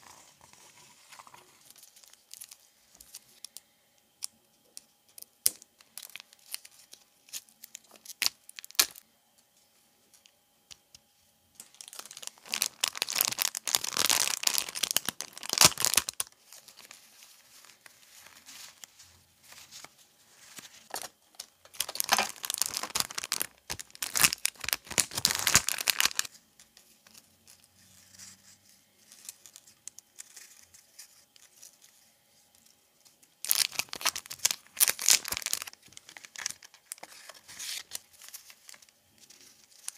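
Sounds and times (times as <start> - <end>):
plastic packets crinkling: 1.0 - 3.6, 5.2 - 9.0, 11.6 - 19.9, 20.6 - 26.3, 29.0 - 31.9, 33.4 - 39.9.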